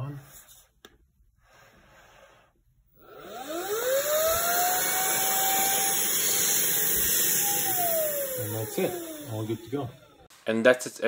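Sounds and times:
handheld vacuum motor whining: 2.9 - 10.3.

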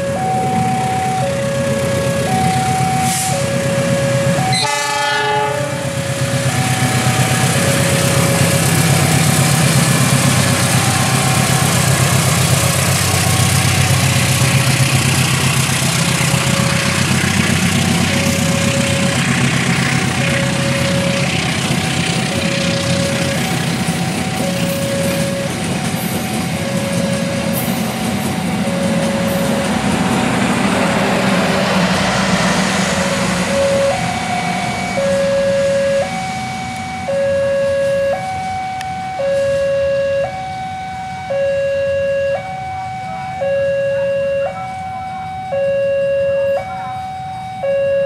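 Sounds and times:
train coaches rolling on rails: 0.0 - 45.7
diesel engine rumbling: 0.0 - 48.0
two-tone crossing alarm: 0.0 - 48.0
locomotive horn blast: 3.0 - 9.5, 28.6 - 36.2, 36.8 - 38.3.

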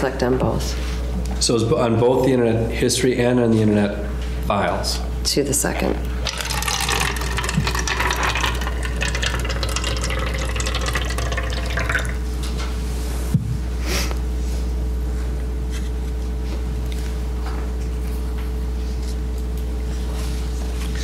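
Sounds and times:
water poured into a cup: 6.2 - 12.2.

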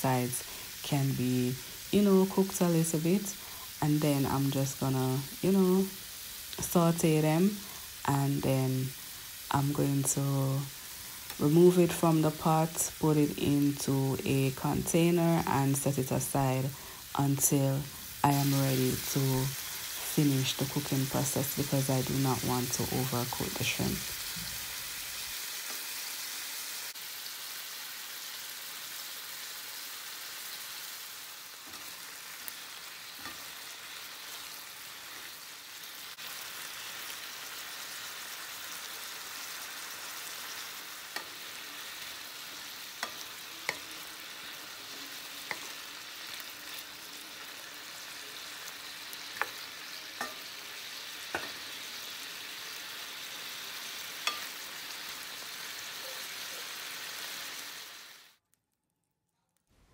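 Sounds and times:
shrimp sizzling in oil: 0.0 - 58.4.

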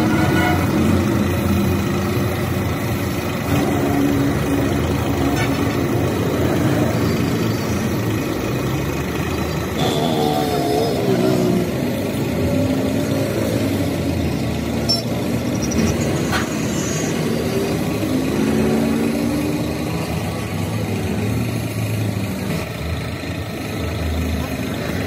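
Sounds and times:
traffic going by: 0.0 - 25.0.

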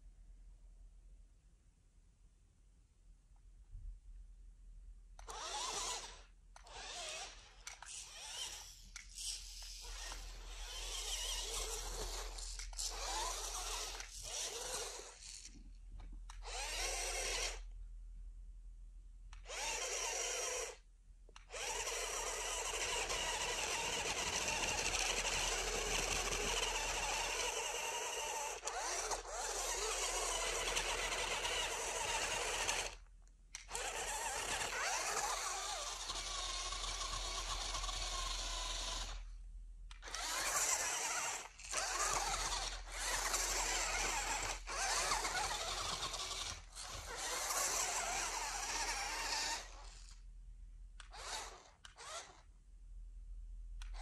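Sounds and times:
toy car electric motor whining: 5.2 - 15.7, 16.3 - 17.8, 19.4 - 50.3, 51.0 - 52.5, 53.8 - 54.0.

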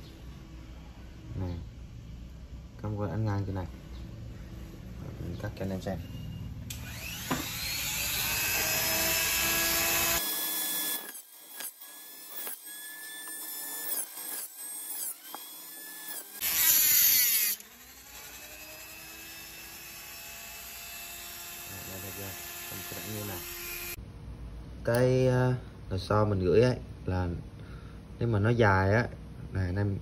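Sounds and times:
rotary tool whining and cutting: 6.7 - 24.0.

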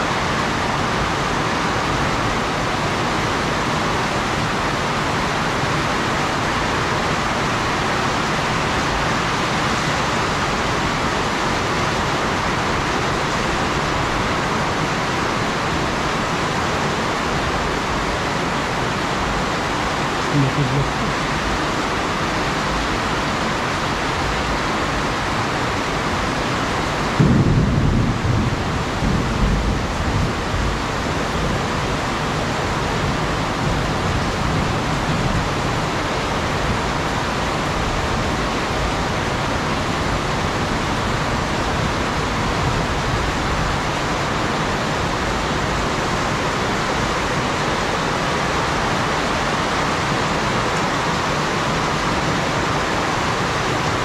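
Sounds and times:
heavy rain pouring: 0.0 - 54.0
thunder clap and rumble: 27.1 - 32.1.

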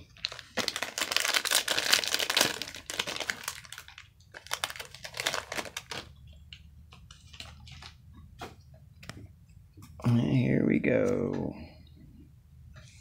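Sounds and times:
wrapper ripped and crinkled: 0.0 - 6.1.

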